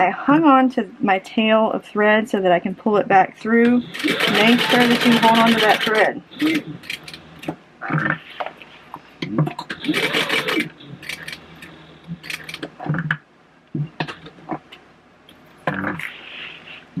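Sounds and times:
sewing machine stitching: 0:03.9 - 0:07.2, 0:09.7 - 0:11.4.

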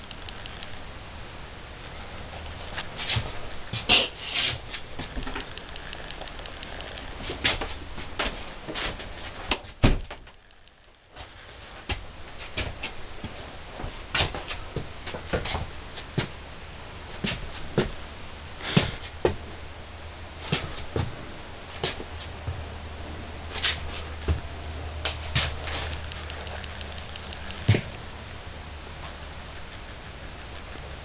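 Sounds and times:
camera handling noise: 0:00.0 - 0:00.8, 0:05.0 - 0:07.4, 0:25.4 - 0:28.0
low steady hum: 0:00.0 - 0:09.3, 0:21.1 - 0:31.0.

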